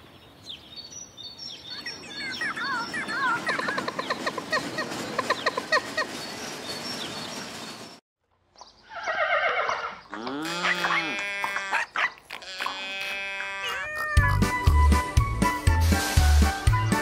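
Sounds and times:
horse whinnying: 0:08.9 - 0:14.5
farm animal calls: 0:08.9 - 0:14.6.

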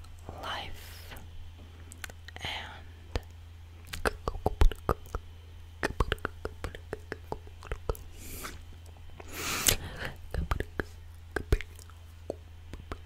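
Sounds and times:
breathy whisper: 0:00.2 - 0:01.3, 0:02.4 - 0:03.0.

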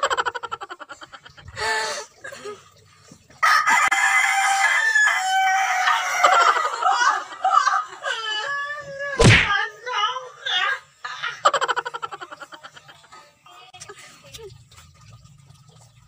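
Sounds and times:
rooster crowing: 0:03.4 - 0:06.8.

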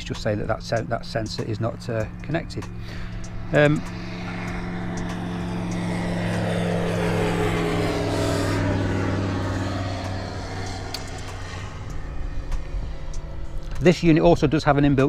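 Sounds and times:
propeller aircraft passing by: 0:00.0 - 0:15.0.

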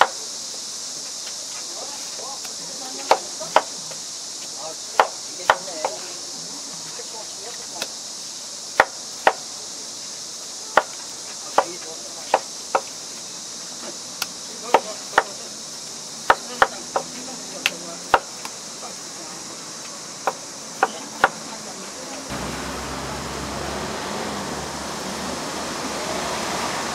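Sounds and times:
steady high-pitched hiss: 0:00.0 - 0:26.9
knife chopping on cutting board: 0:05.0 - 0:06.0.

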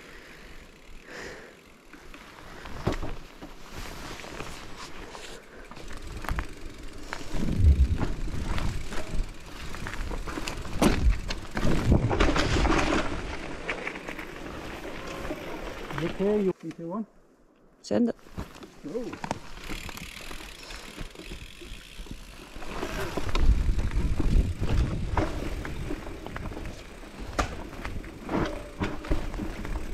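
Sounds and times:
bike tyre rumble: 0:00.0 - 0:16.4, 0:18.2 - 0:29.9
bike knocking and clattering: 0:05.8 - 0:15.3, 0:18.9 - 0:29.9.

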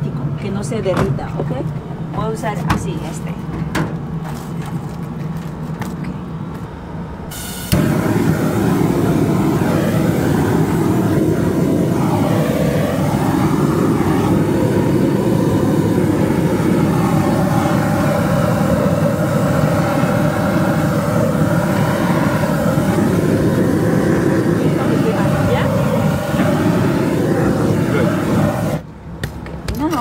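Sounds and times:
roofing torch burning: 0:07.3 - 0:30.0.

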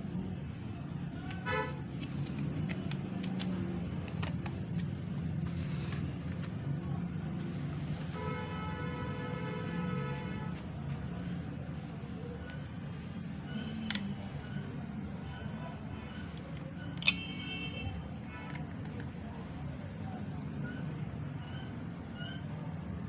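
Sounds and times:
road traffic rumble: 0:00.0 - 0:23.0
vehicle horn: 0:01.4 - 0:01.8, 0:08.2 - 0:10.6
light plastic clicks and knocks: 0:02.0 - 0:05.1.

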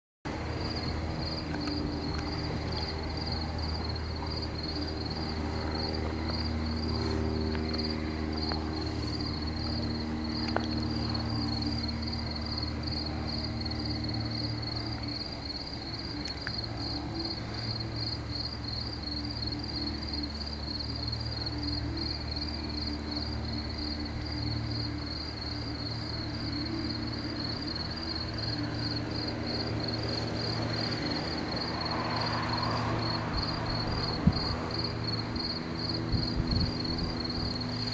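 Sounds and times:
low mechanical hum: 0:00.3 - 0:37.9
insects trilling: 0:00.4 - 0:37.9.

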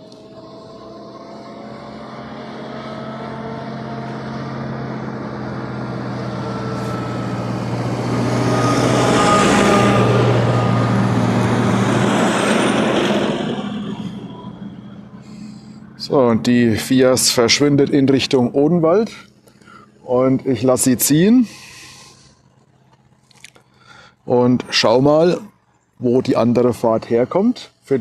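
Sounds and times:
short rising whine: 0:00.0 - 0:28.0
vehicle engine humming: 0:00.0 - 0:28.0
rushing noise: 0:00.5 - 0:17.5.

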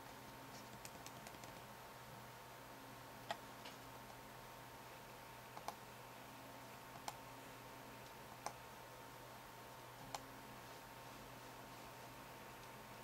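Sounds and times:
faint steady hum: 0:00.0 - 0:13.0
mouse buttons clicking: 0:05.6 - 0:05.8, 0:10.0 - 0:10.3.

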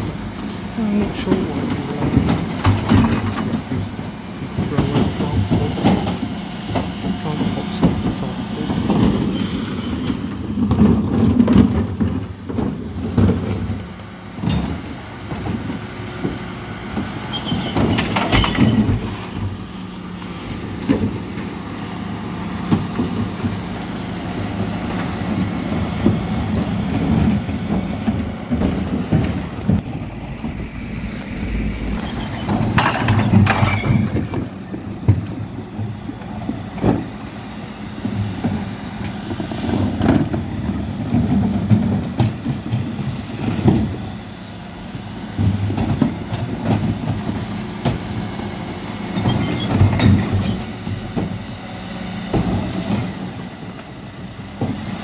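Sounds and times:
bins knocking and clattering: 0:00.0 - 0:09.4, 0:10.0 - 0:19.6, 0:24.4 - 0:30.6, 0:31.9 - 0:37.2, 0:38.0 - 0:44.2, 0:45.3 - 0:51.4
garbage truck engine running: 0:00.0 - 0:55.0.

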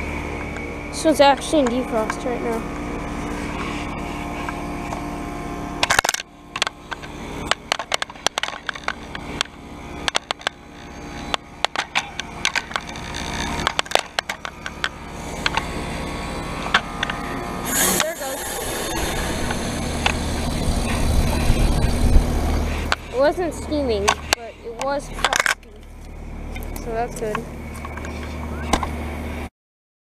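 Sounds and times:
heat pump compressor hum: 0:00.0 - 0:29.5
sharp crackles and clicks: 0:05.8 - 0:15.7.

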